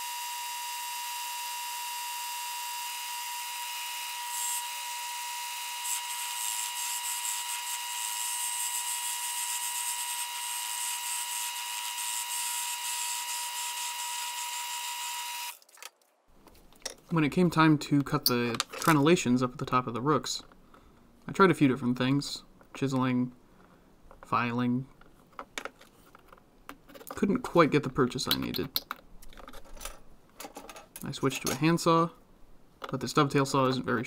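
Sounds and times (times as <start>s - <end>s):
wood lathe whine: 0.0s - 15.6s.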